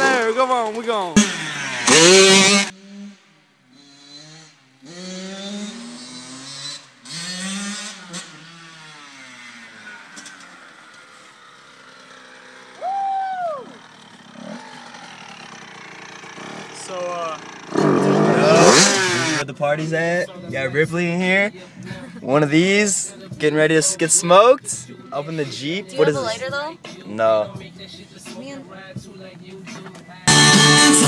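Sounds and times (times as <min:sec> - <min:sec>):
vehicle engine accelerating: 0:01.1 - 0:20.4.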